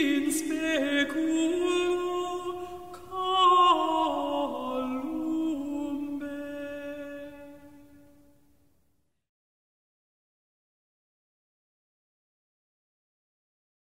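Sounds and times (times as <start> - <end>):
person singing unaccompanied chant: 0.0 - 8.1.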